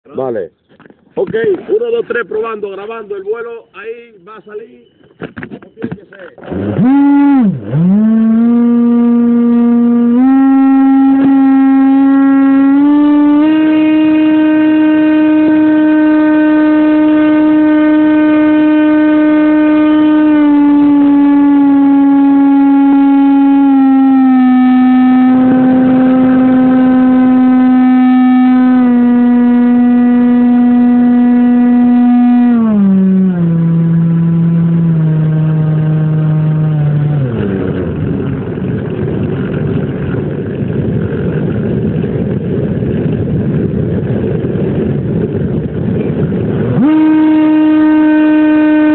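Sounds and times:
model airplane motor buzzing: 0:06.4 - 0:48.9.

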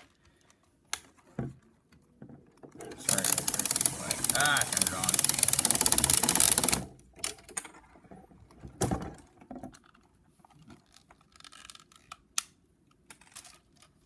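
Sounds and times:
plastic parts clicking and knocking: 0:00.4 - 0:14.0
toy motor and gears rattling: 0:02.8 - 0:06.9.

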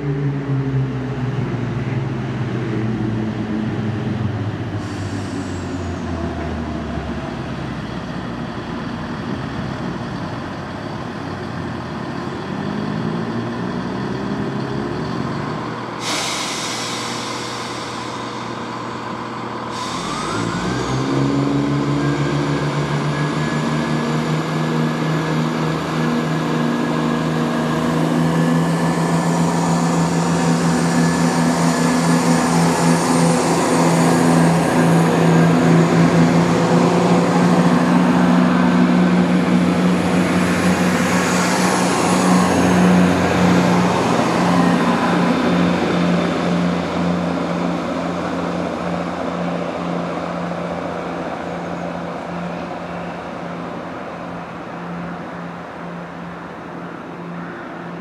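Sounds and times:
train diesel engines droning: 0:00.0 - 0:58.0
air hiss: 0:04.8 - 0:06.1, 0:16.0 - 0:21.3.

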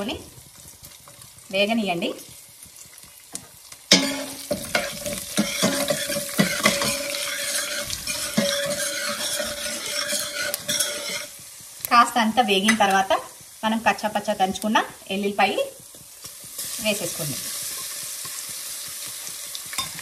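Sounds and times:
spices sizzling in hot oil: 0:00.0 - 0:20.0
metal spoon scraping a pot: 0:03.9 - 0:11.4.

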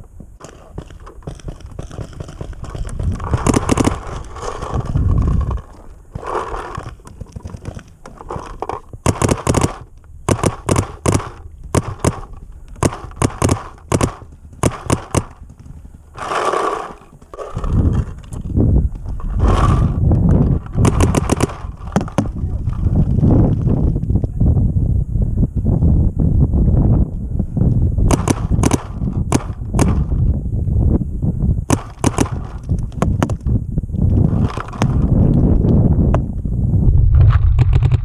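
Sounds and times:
paintball markers firing: 0:00.4 - 0:23.0, 0:28.1 - 0:30.2, 0:31.7 - 0:33.5.

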